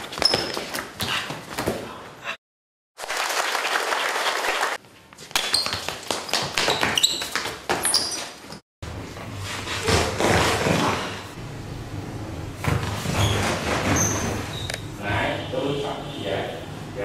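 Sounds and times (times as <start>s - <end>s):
people clapping: 3.0s - 4.8s.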